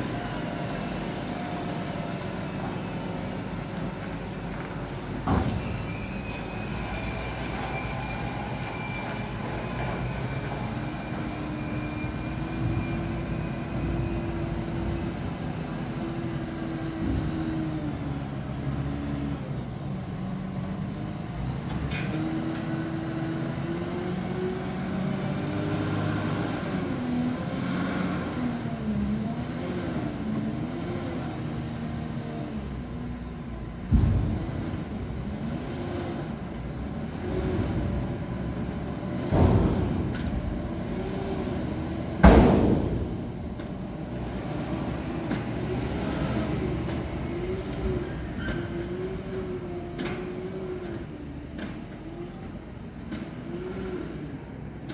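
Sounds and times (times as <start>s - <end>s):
diesel engine working hard: 0.0s - 54.9s.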